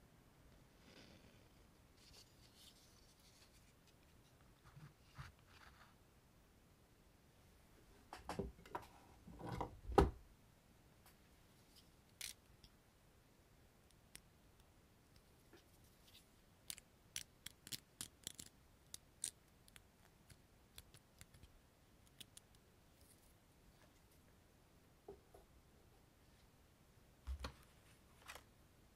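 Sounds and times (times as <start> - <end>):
sharp clicks and snaps: 16.6 - 22.6.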